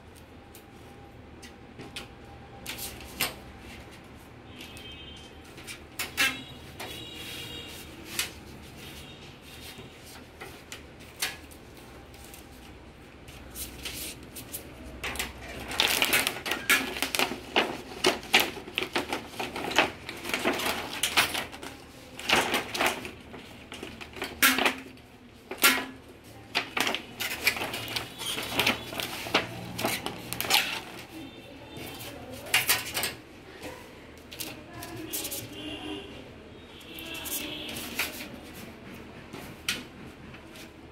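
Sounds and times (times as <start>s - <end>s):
hands clicking and rattling parts: 13.6s - 31.2s.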